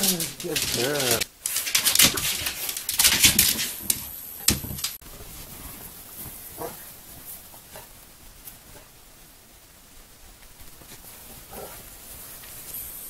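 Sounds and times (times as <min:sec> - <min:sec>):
dogs playing on tile floor: 0:00.0 - 0:09.0
faint dog bark: 0:06.6 - 0:06.9.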